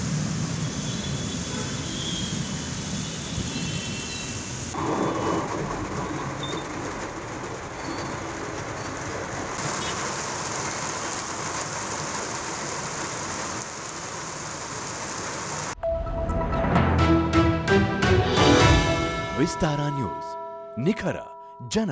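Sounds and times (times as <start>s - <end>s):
rain hiss: 0.0s - 15.8s
vehicles passing on wet street: 0.0s - 15.8s.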